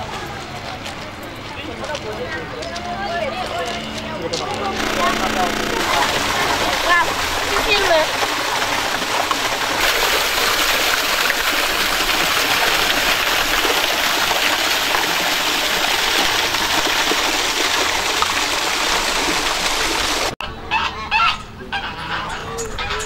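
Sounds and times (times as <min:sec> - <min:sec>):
small waterfall splashing: 0:04.8 - 0:20.4.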